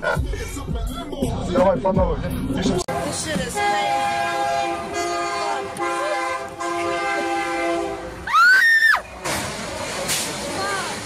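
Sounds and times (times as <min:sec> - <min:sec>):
locomotive horn blasts: 0:02.9 - 0:08.2.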